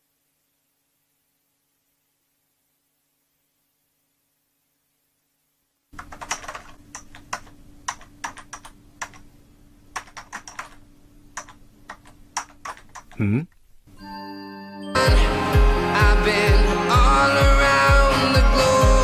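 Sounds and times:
keyboard typing clicks: 0:06.0 - 0:09.3, 0:10.0 - 0:10.8, 0:11.4 - 0:13.2.

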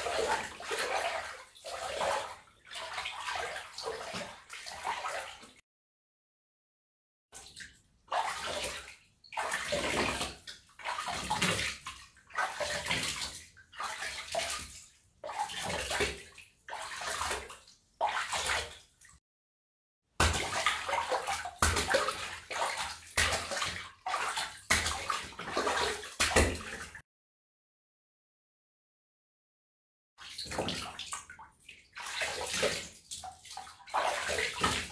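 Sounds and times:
water splashing: 0:00.0 - 0:05.6, 0:07.4 - 0:18.9, 0:20.2 - 0:27.0, 0:30.2 - 0:34.9.

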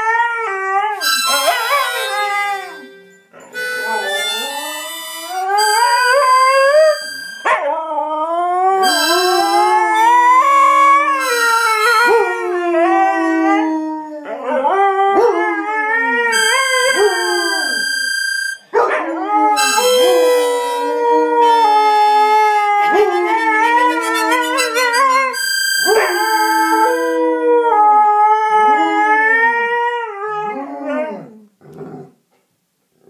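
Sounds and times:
dogs howling: 0:00.0 - 0:03.0, 0:03.6 - 0:18.0, 0:18.8 - 0:31.4
harmonica held notes: 0:01.0 - 0:07.6, 0:08.7 - 0:12.6, 0:16.3 - 0:18.7, 0:19.5 - 0:27.4.

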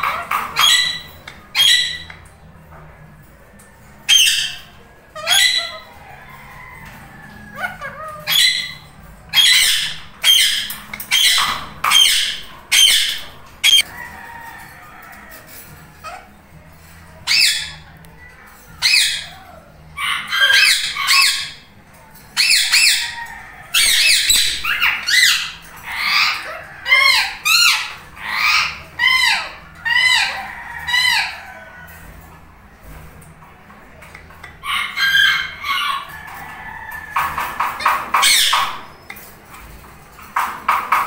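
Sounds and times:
parakeets squawking: 0:00.0 - 0:02.4, 0:04.0 - 0:13.9, 0:17.2 - 0:17.9, 0:18.7 - 0:21.8, 0:22.4 - 0:31.7, 0:34.1 - 0:39.3.

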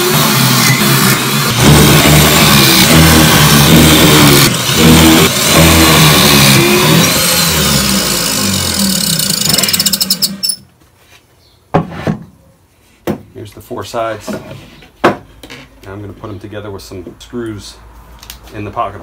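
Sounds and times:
drill motor boring wood: 0:00.0 - 0:10.6.

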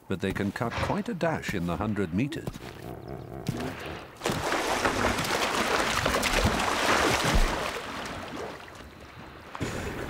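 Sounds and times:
water splashing and churning: 0:03.4 - 0:10.0.

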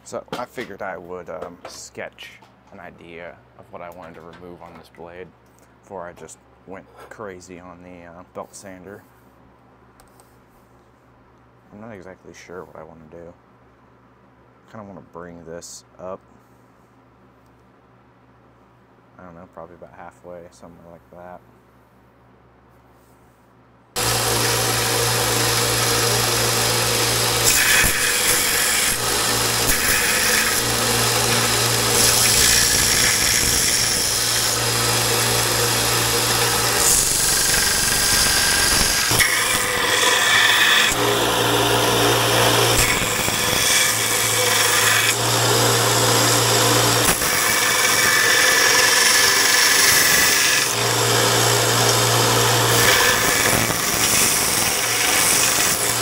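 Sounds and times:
belt sander grinding steel: 0:24.0 - 0:56.0.

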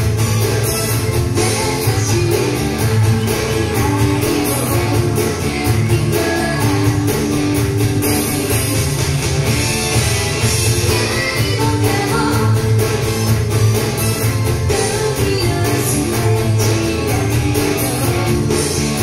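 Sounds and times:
pop-rock band: 0:00.0 - 0:19.0
woman singing: 0:01.4 - 0:07.4, 0:10.8 - 0:12.8, 0:14.7 - 0:18.8.

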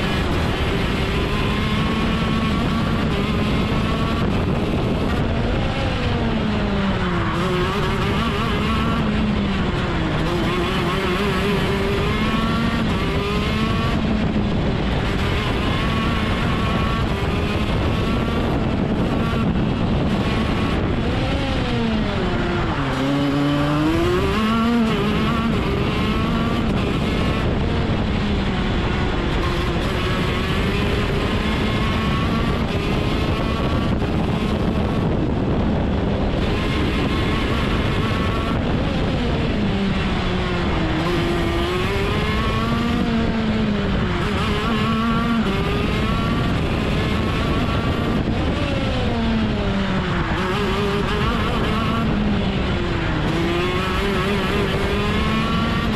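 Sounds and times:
kart engine revving: 0:00.0 - 0:55.9.

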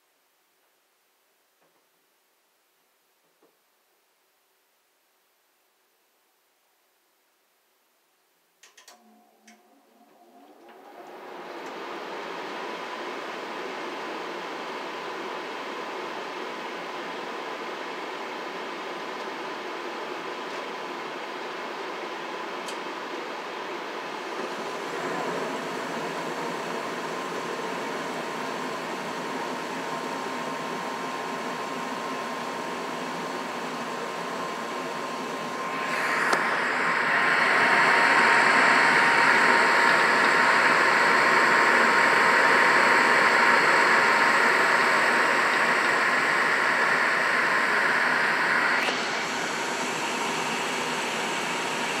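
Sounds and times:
faint steady whine: 0:00.0 - 0:52.0
furnace airy rush: 0:24.2 - 0:52.0.

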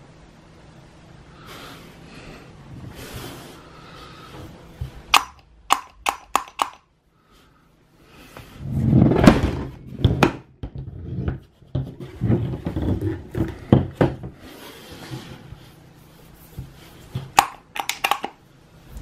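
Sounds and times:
sharp clicks: 0:05.1 - 0:06.9.

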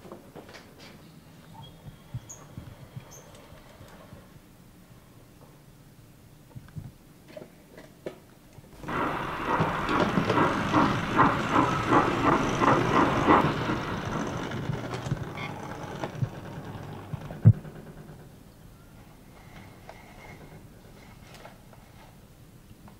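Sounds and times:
model locomotive running gear beat: 0:08.8 - 0:18.4.

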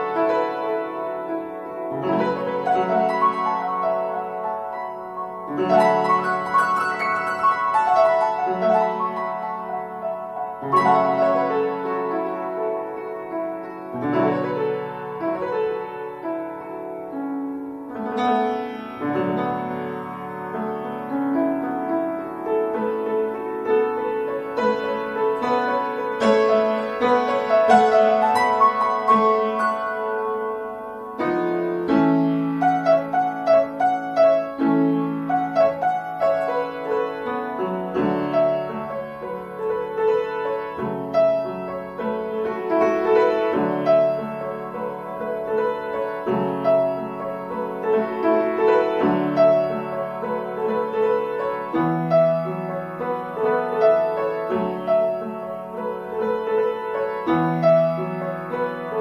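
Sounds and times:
solo upright piano: 0:00.0 - 0:59.0.

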